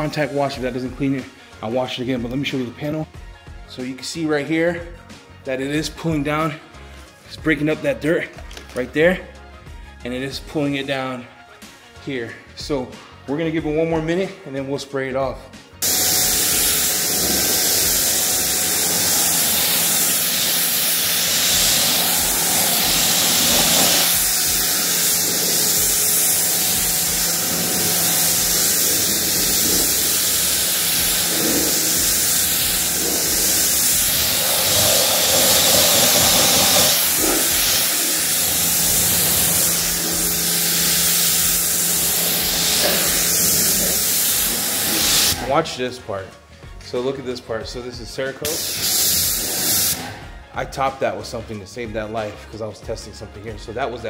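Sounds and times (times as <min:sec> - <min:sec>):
pressure washer spraying water: 0:15.8 - 0:45.6, 0:48.5 - 0:50.2.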